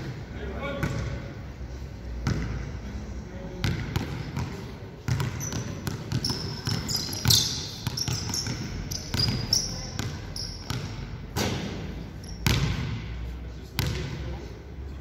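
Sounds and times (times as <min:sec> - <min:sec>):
basketball dribbling: 0:03.6 - 0:11.0
sneakers squeaking on court floor: 0:03.6 - 0:14.2.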